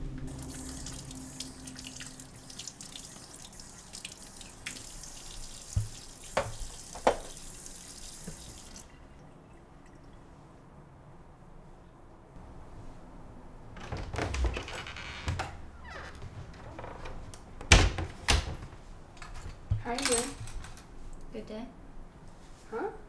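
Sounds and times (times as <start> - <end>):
faucet running into sink: 0.3 - 10.0.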